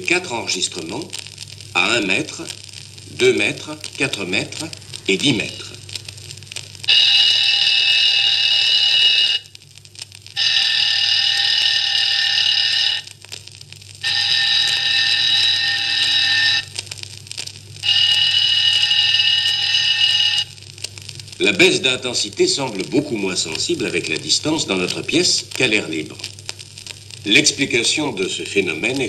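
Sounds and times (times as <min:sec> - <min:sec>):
alarm clock ringing: 0:06.9 - 0:09.4, 0:10.4 - 0:13.1, 0:14.0 - 0:16.7, 0:17.8 - 0:20.5.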